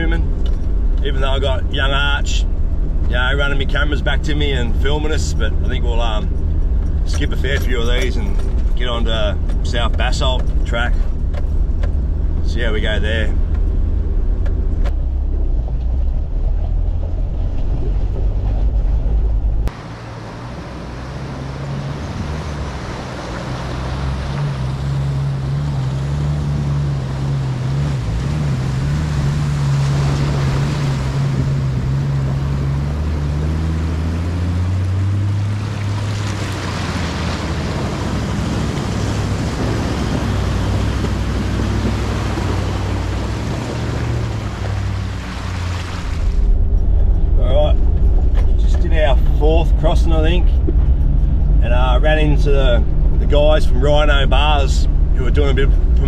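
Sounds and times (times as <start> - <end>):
deep in-cab drone: 0.0 - 56.0
vehicle engine pulling steadily: 0.0 - 56.0
water splashing: 15.8 - 48.5.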